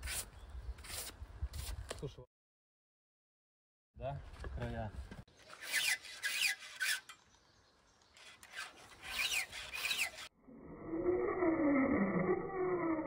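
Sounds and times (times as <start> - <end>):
file scraping chainsaw chain: 5.5 - 7.2, 8.2 - 10.3.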